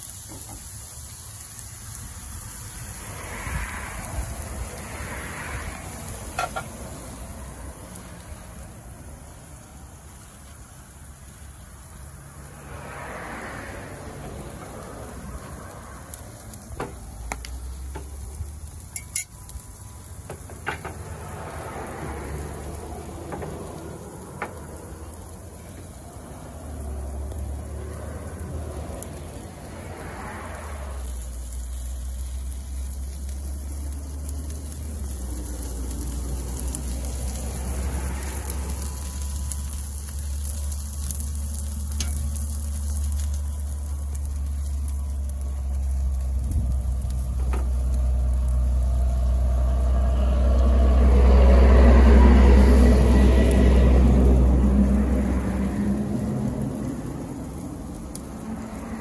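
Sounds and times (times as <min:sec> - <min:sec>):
food sizzling on a grill: 0:00.0 - 0:59.0
low rumble: 0:20.9 - 0:59.0.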